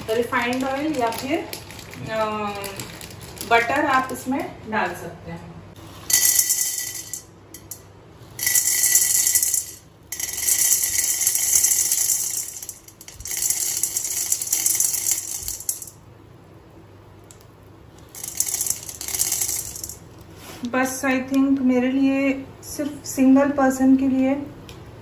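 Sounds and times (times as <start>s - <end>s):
popcorn kernels rattling on metal: 0.0s - 4.4s, 6.1s - 7.8s, 8.4s - 16.0s, 18.0s - 20.2s.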